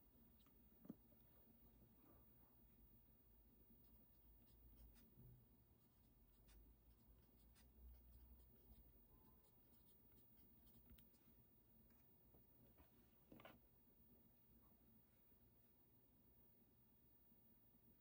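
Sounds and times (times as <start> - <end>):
pen scratching on paper: 4.3 - 11.3.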